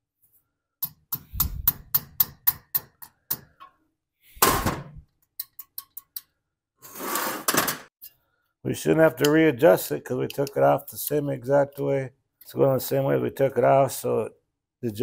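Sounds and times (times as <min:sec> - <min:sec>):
small hammer tapping metal: 0:00.8 - 0:03.7.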